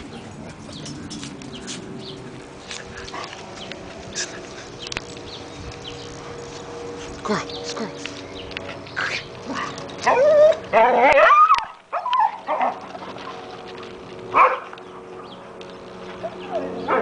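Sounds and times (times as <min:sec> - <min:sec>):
dog yipping: 0:10.0 - 0:12.8.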